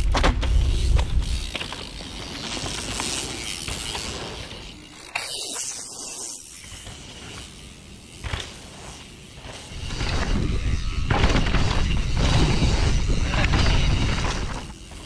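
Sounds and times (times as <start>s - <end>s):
bike tyres skidding on dirt: 0.0s - 15.0s
bike hitting ground sharply: 8.1s - 15.0s.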